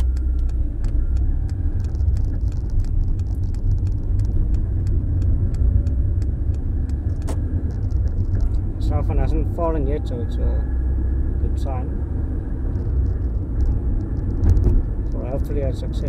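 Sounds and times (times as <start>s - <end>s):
clicks and rattles: 0.0s - 8.6s, 12.7s - 15.4s
engine and road rumble: 0.0s - 16.0s.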